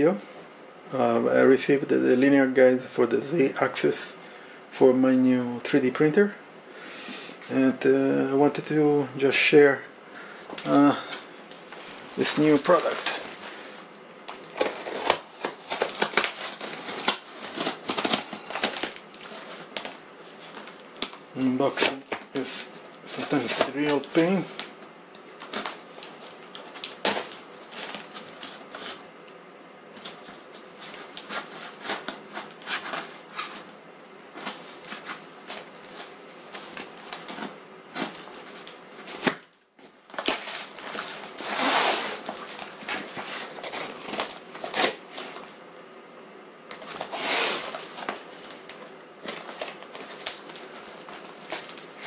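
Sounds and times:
tape and plastic crackling: 10.5 - 45.6, 46.6 - 52.0
cardboard packaging tearing: 11.7 - 13.4, 14.3 - 24.7, 30.0 - 33.7, 40.1 - 45.5, 46.7 - 52.0.

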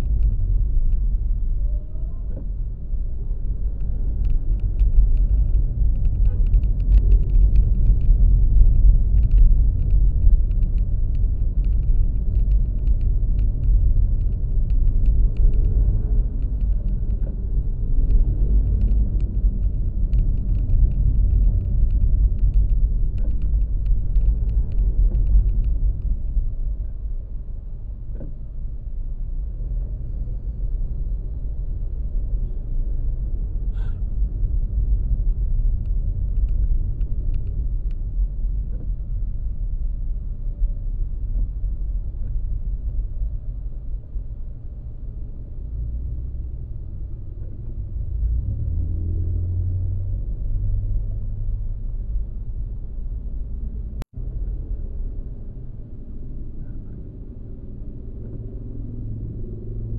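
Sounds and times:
road vehicle rumble: 0.0 - 59.9.

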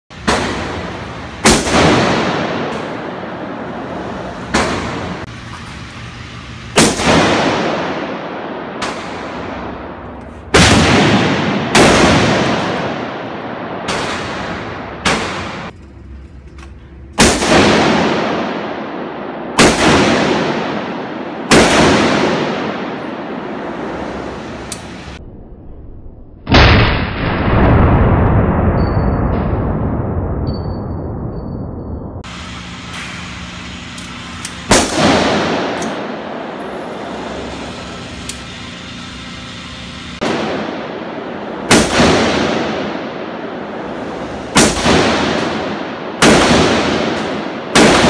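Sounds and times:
rifle shots echoing: 0.2 - 5.3, 6.8 - 15.7, 17.2 - 24.6, 34.6 - 37.8, 40.2 - 48.0.

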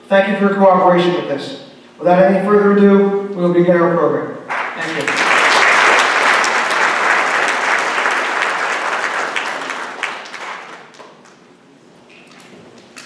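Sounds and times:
audience applause: 4.5 - 11.4.

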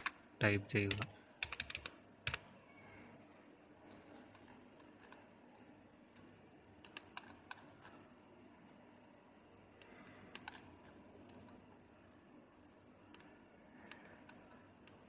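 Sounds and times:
keyboard keystrokes: 0.9 - 2.4, 6.8 - 7.9, 9.8 - 10.7
mouse clicks: 6.2 - 7.9, 13.1 - 15.0.

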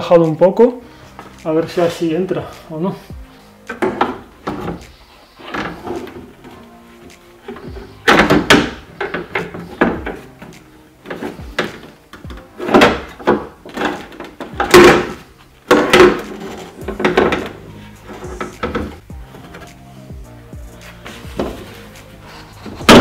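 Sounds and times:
plastic and metal scraping: 7.5 - 19.7.

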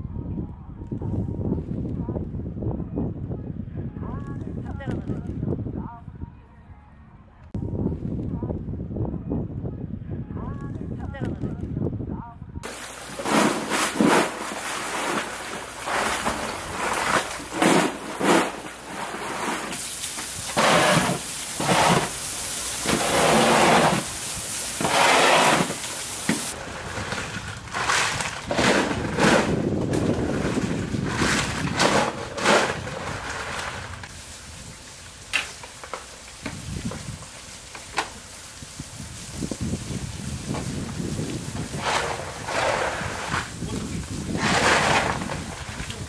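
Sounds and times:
water splashing: 12.6 - 26.6.

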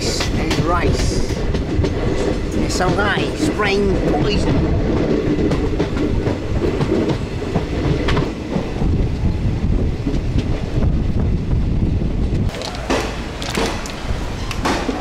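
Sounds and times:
train rumbling on track: 0.0 - 15.0.

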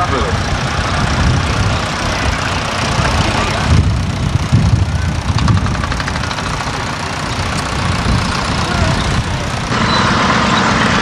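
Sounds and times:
tractor engines rumbling: 0.0 - 11.0
ticking clatter: 2.2 - 9.8.

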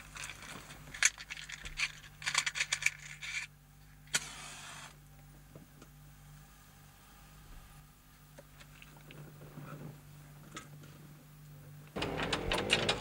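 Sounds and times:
objects rattling inside a car: 12.0 - 13.0.

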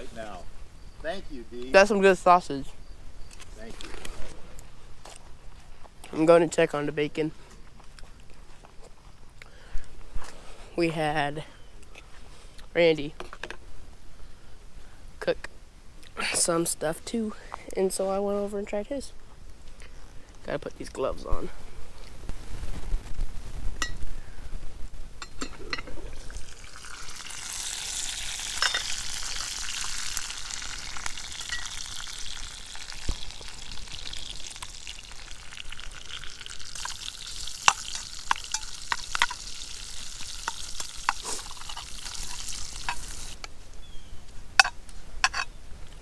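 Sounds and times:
bacon sizzling: 25.7 - 43.4.

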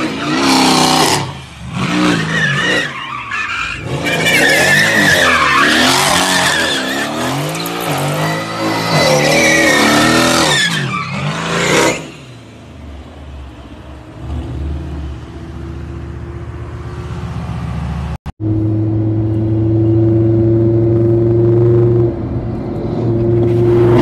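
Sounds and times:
tyres squealing: 1.9 - 12.1.

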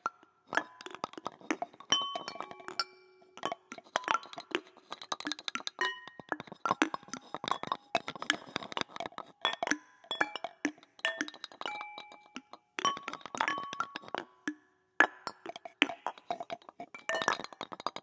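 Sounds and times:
found-object instruments clinking: 1.9 - 4.4, 9.4 - 14.1.

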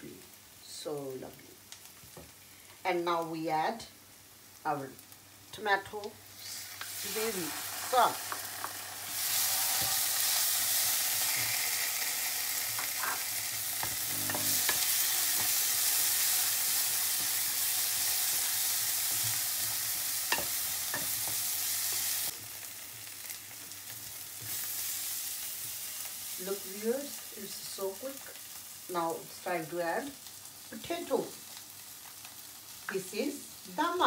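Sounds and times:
sauce sizzling in a pan: 0.2 - 34.0
wooden spoon scraping a pan: 12.8 - 16.4.

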